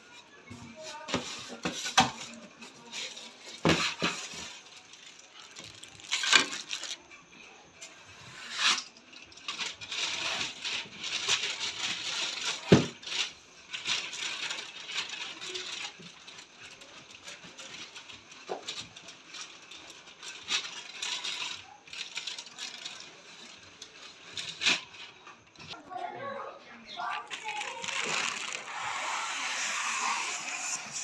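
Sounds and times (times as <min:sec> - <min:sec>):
plastic crinkling against cardboard: 0:00.0 - 0:25.8, 0:27.0 - 0:31.0.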